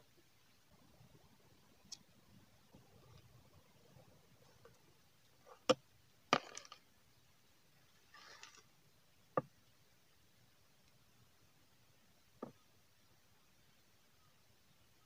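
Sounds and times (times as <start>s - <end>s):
rustle of dry leaves: 7.9s - 8.7s.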